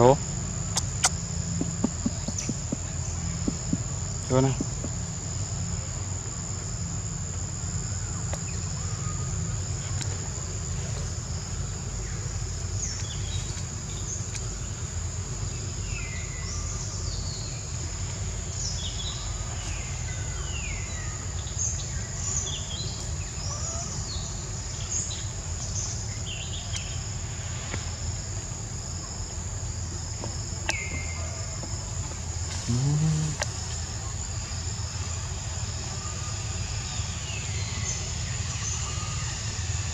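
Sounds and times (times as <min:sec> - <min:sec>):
steady low rumble: 0:00.0 - 0:07.7
insects droning: 0:00.0 - 0:39.9.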